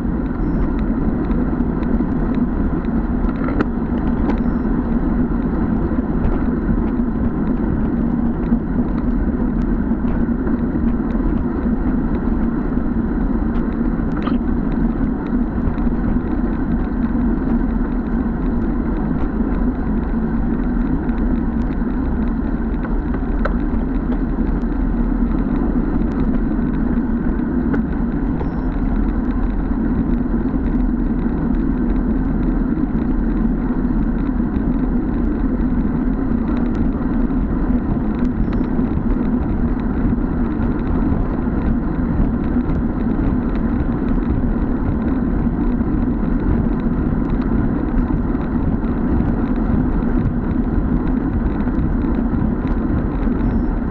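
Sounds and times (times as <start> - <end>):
bicycle tyre noise: 0.0 - 53.9
wind rushing on microphone: 0.0 - 53.9.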